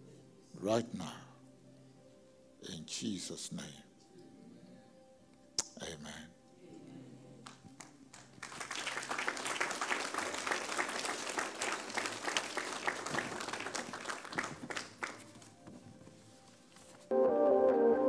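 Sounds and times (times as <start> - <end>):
congregation applauding: 7.4 - 15.5.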